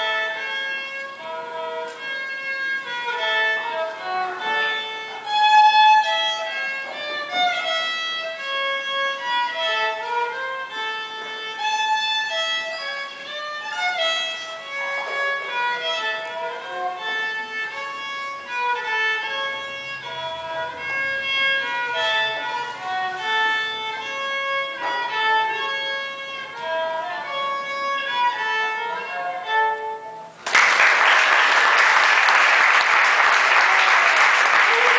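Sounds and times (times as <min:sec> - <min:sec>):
solo fiddle tune: 0:00.0 - 0:30.4, 0:34.7 - 0:34.9
applause: 0:30.4 - 0:34.9.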